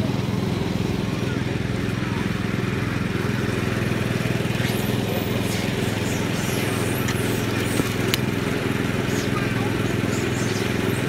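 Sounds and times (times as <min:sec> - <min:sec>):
small engine running: 0:00.0 - 0:11.0.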